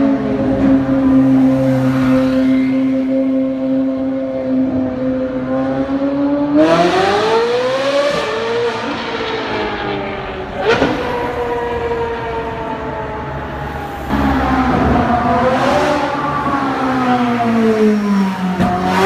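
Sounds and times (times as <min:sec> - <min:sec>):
car engine revving: 0:04.6 - 0:19.0.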